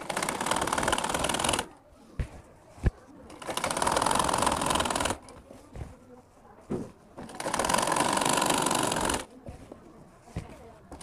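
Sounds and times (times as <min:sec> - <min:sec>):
sewing machine clattering: 0:00.0 - 0:01.7, 0:03.3 - 0:05.3, 0:07.2 - 0:09.3.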